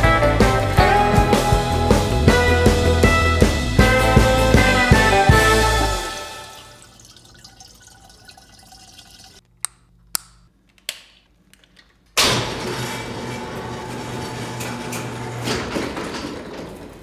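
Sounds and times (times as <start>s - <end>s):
liquid running into container: 6.0s - 9.4s.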